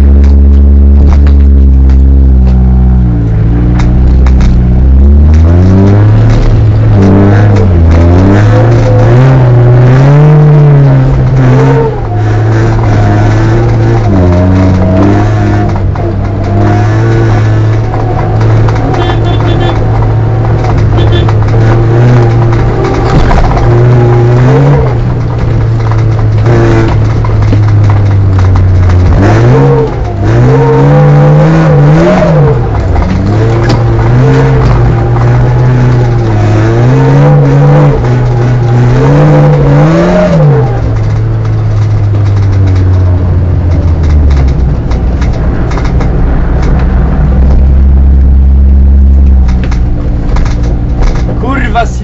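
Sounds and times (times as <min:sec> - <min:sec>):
car engine revving: 0:00.0 - 0:52.0.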